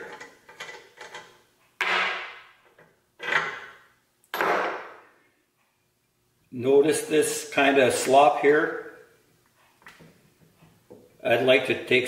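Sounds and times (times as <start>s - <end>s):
metal parts scraping and rattling: 0.0s - 1.4s.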